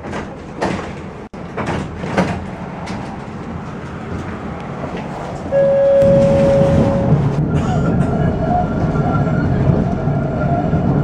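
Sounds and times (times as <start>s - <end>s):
tram clunks: 0.0s - 11.0s
tram running noise: 0.0s - 11.0s.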